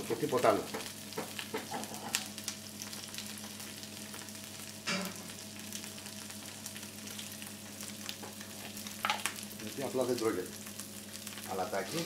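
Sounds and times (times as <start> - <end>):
potatoes sizzling in a frying pan: 0.0 - 12.0.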